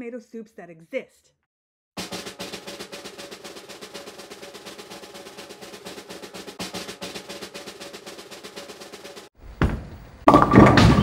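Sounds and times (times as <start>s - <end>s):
snare drum roll: 2.0s - 9.4s.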